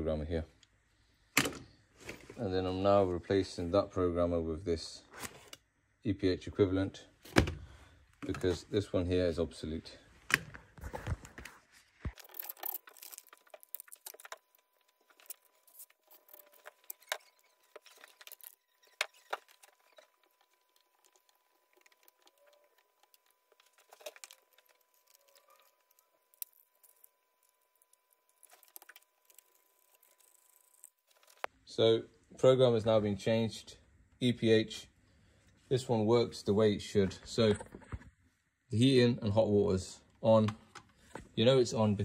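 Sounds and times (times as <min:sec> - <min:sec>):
plastic rustling: 0:10.6 - 0:31.5
faint steady tone: 0:12.2 - 0:32.1.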